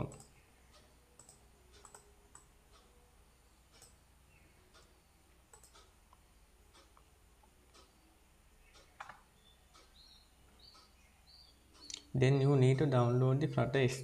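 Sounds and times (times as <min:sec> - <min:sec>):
computer mouse clicks: 0:00.0 - 0:02.9, 0:03.7 - 0:04.0, 0:05.5 - 0:07.9, 0:08.7 - 0:10.0.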